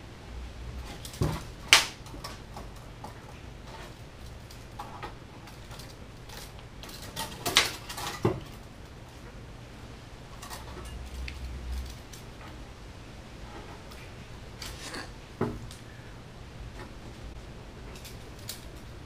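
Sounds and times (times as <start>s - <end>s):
tape measure clicks and rattles: 17.9s - 19.0s.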